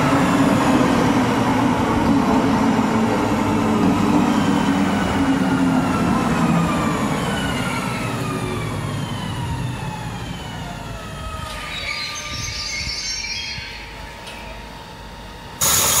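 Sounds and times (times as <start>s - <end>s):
electric train motors whining: 2.8s - 16.0s.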